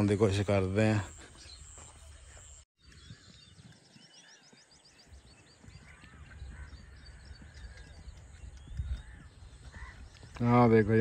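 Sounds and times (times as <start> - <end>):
birds chirping and warbling: 0.0 - 11.0
low wind rumble: 4.8 - 11.0.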